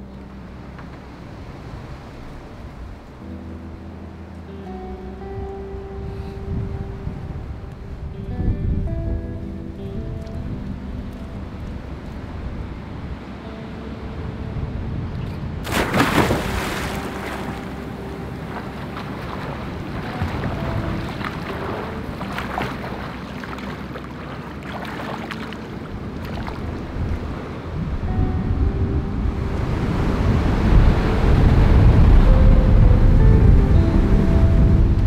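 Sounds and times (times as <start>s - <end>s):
wind and surf: 0.0s - 35.0s
water splashes from swimming: 15.6s - 26.8s
low rumble: 25.5s - 35.0s.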